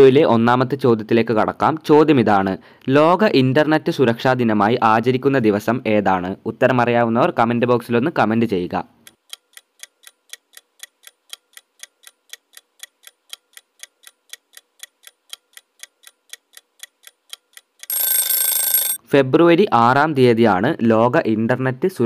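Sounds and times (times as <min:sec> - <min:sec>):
clock ticking: 0:09.0 - 0:19.0
bell alarm ringing: 0:17.9 - 0:19.0.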